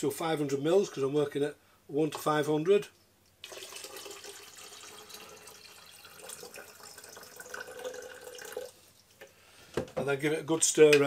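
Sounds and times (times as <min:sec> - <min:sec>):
water pouring into a cylinder: 0:03.4 - 0:08.8.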